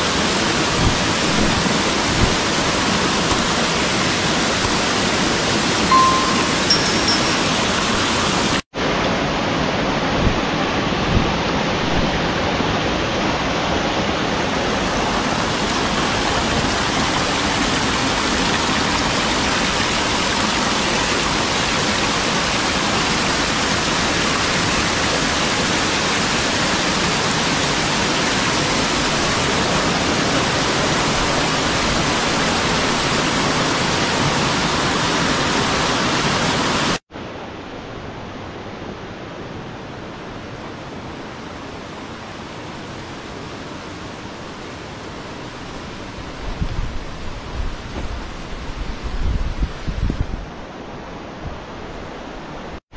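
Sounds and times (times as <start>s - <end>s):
waterfall rushing: 0.0s - 37.0s.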